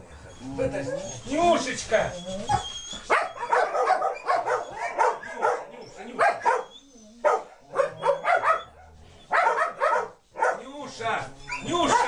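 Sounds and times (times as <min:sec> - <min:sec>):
dogs barking: 0:03.1 - 0:10.7, 0:11.5 - 0:12.0.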